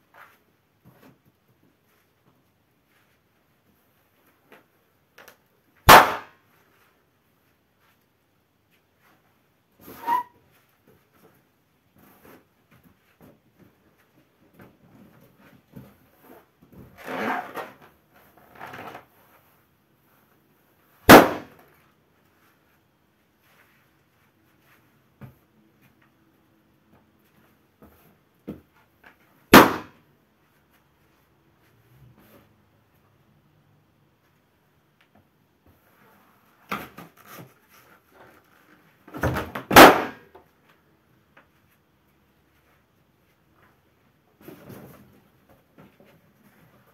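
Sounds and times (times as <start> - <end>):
balloon bursting bang: 5.9 - 6.3, 21.1 - 21.5, 29.5 - 29.9
rubber balloon creaking: 16.9 - 19.1.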